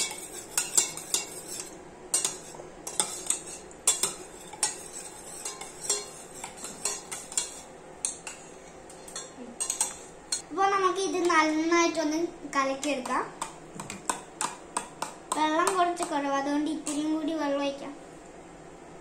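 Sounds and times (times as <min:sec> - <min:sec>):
metal spoon clinking in mug: 0:00.0 - 0:10.4.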